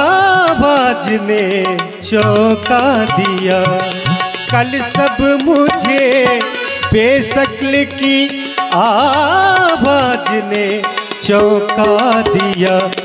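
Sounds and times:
harmonium melody: 0.0 - 13.0
person singing wordless vocal: 0.0 - 13.0
tabla strokes: 1.7 - 13.0.

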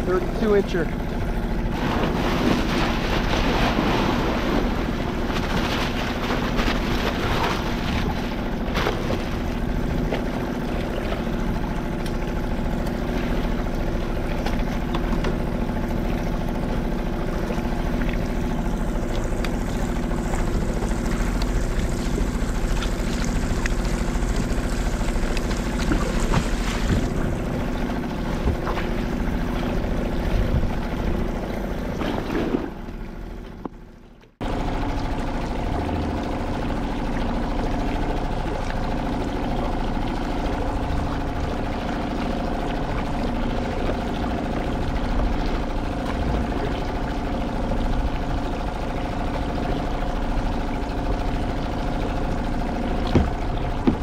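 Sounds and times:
motorboat engine droning: 0.0 - 54.0
wind rumble on microphone: 25.4 - 32.6.

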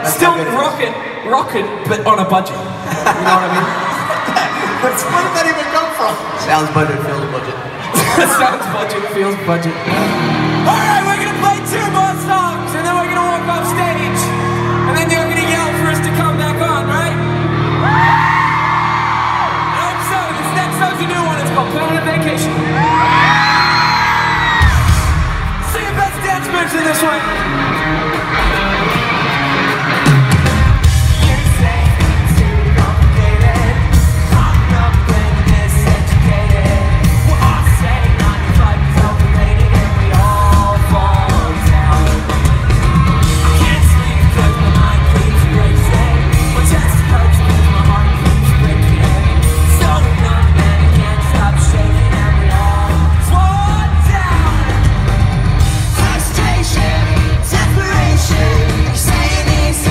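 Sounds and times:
crowd yelling and singing along: 0.0 - 59.9
live rock band playing: 0.0 - 59.9
sung vocals: 30.9 - 59.9.

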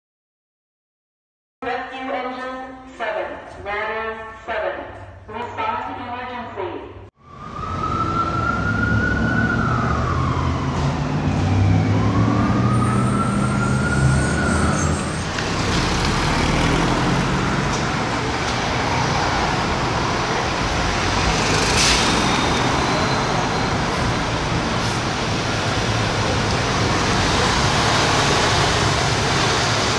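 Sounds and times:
car passing: 7.2 - 29.9
emergency vehicle siren wailing: 7.2 - 29.9
street traffic: 7.2 - 29.9.

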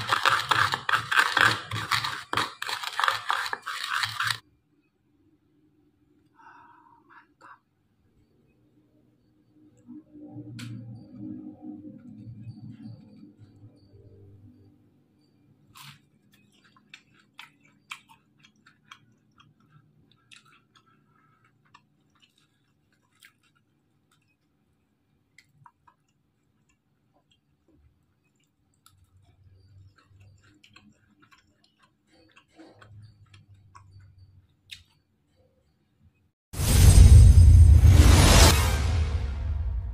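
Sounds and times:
man chewing crunchy food: 0.0 - 4.4, 15.5 - 36.3.

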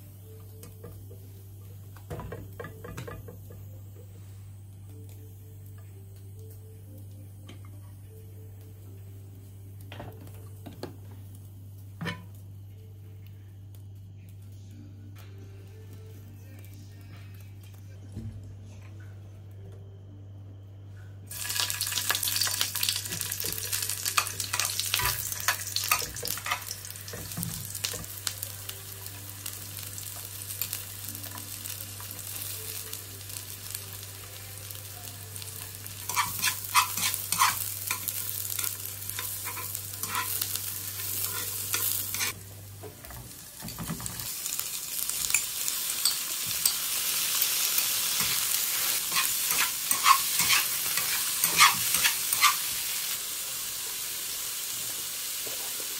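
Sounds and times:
onion sizzling in hot oil: 21.3 - 55.9.

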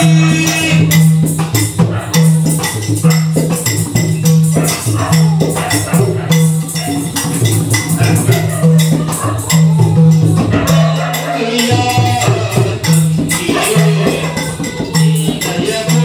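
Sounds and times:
barrel drum beating: 0.0 - 16.0
metallic jingling and clicks: 1.5 - 12.0.

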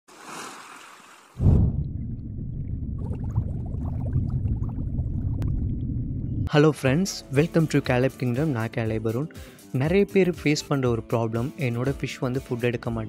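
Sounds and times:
deep underwater rumble: 1.4 - 6.5
faint bubbling: 1.4 - 6.5.

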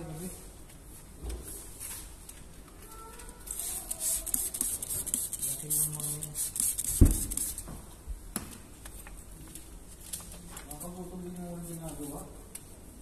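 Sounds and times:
spray bottle squirting on glass: 3.5 - 7.7
loud thump: 7.0 - 7.4.

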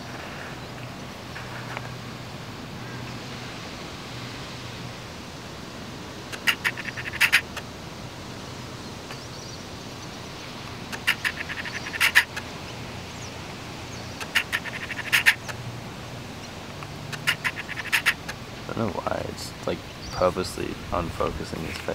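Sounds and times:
animal call of clicking notes: 6.3 - 7.6, 10.9 - 12.5, 14.2 - 15.6, 17.1 - 18.4.

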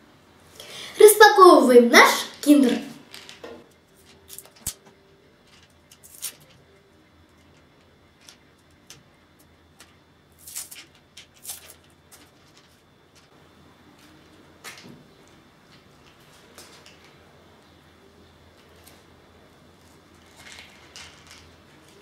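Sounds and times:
sticky tape peeling crackles: 4.0 - 4.9, 5.5 - 6.7, 9.8 - 12.6.

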